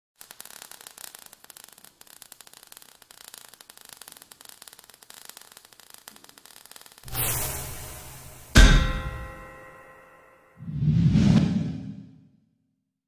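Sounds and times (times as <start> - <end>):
falling sparks crackling: 0.2 - 9.8.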